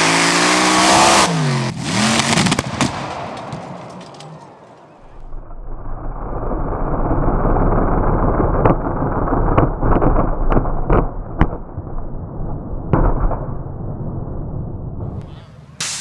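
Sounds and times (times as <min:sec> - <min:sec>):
backfire bangs: 0:01.2 - 0:04.7.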